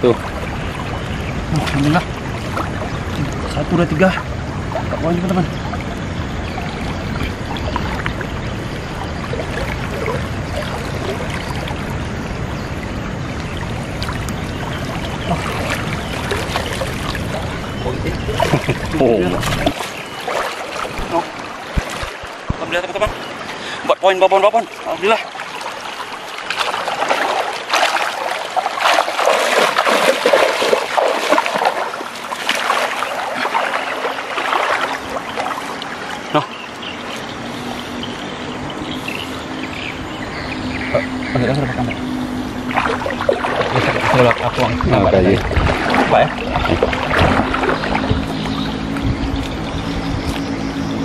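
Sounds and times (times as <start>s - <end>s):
river water running: 0.0s - 51.0s
splashes and knocks of cast net: 18.3s - 22.4s, 26.4s - 35.6s, 42.7s - 44.8s, 45.4s - 48.7s.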